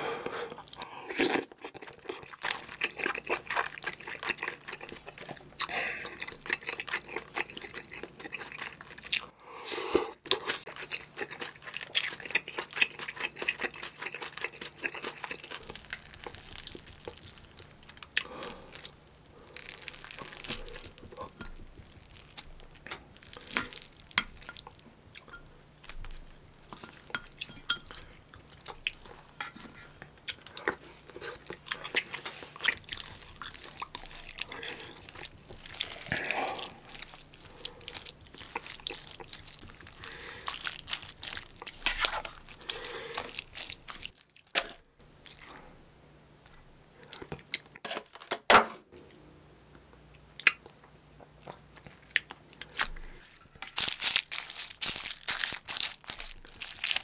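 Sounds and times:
chewing: 0.5 - 9.3, 10.0 - 44.5, 50.4 - 57.0.

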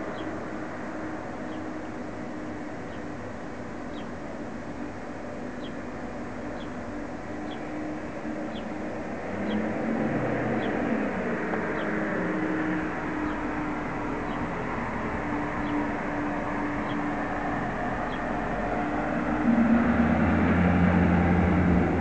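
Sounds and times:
car engine driving past: 18.0 - 22.0.

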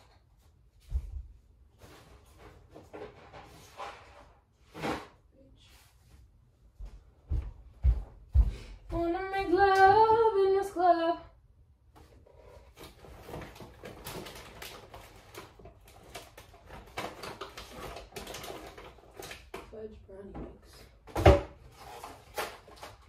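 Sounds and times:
woman singing wordless phrase: 8.9 - 11.3
small items clicking and rattling: 13.0 - 19.7.

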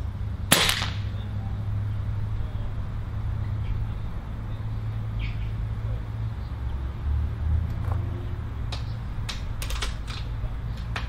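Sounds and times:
low background rumble: 0.0 - 11.0
faint bird chirp: 3.4 - 5.6.

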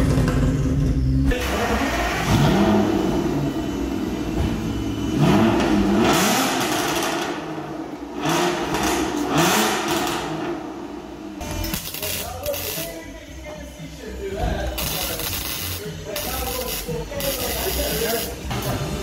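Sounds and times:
car engine revving: 0.0 - 12.8.

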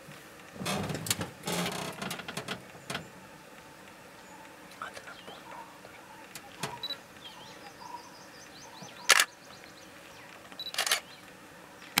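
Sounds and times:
faint bird chirps: 4.2 - 12.0
camera shutters clicking: 9.1 - 9.3, 10.6 - 11.1.

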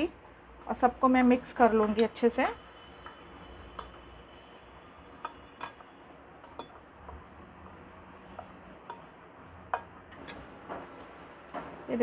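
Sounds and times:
utensil clinking against bowl: 5.2 - 6.8.

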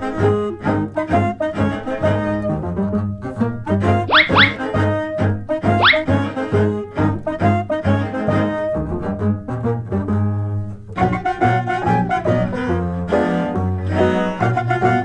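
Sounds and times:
instrumental background music: 0.0 - 15.0.

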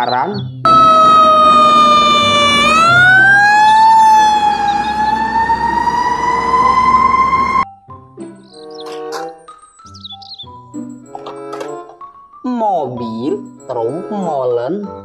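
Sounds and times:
engine low rumble: 0.7 - 7.6
fire truck siren wailing: 0.7 - 7.6.

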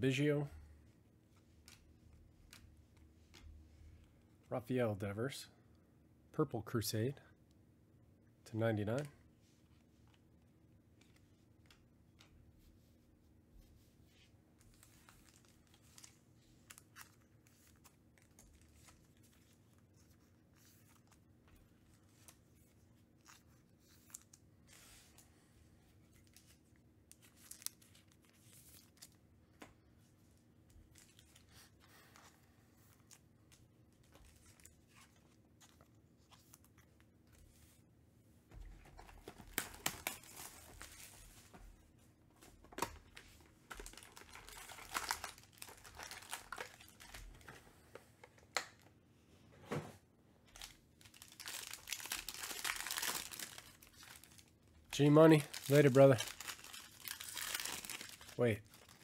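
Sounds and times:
plastic wrapping crinkling and tearing: 14.7 - 21.2, 26.2 - 29.2, 39.0 - 41.2, 42.8 - 47.5, 50.6 - 59.0.

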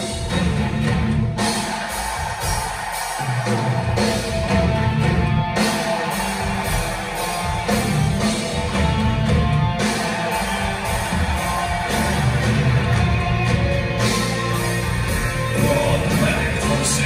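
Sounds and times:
metal band playing live: 0.0 - 17.0.

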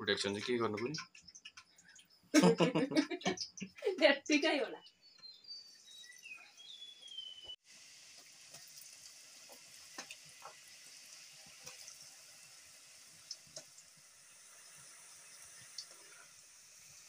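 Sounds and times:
oil sizzling with pops: 0.0 - 17.0
bird chirping: 0.6 - 2.4, 3.0 - 7.6.

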